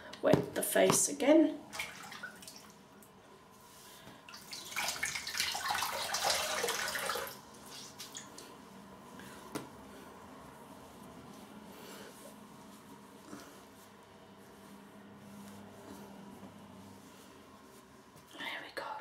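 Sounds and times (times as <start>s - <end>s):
water splashing in sink: 1.7s - 2.8s, 4.3s - 8.4s.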